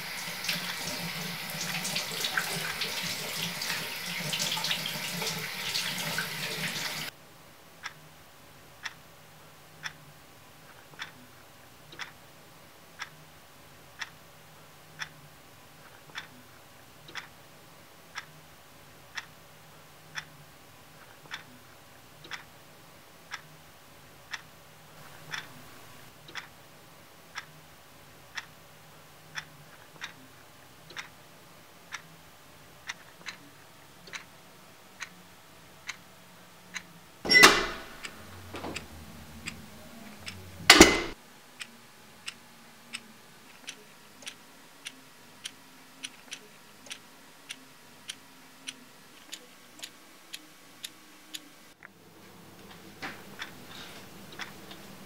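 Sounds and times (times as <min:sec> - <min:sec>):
clock ticking: 0:00.0 - 0:05.6, 0:07.8 - 0:08.2, 0:08.8 - 0:26.7, 0:27.3 - 0:51.9, 0:53.2 - 0:55.0.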